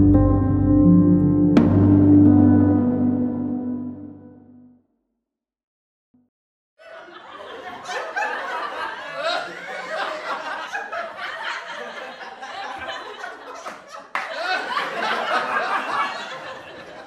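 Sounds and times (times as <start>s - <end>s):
people laughing: 6.8s - 17.0s.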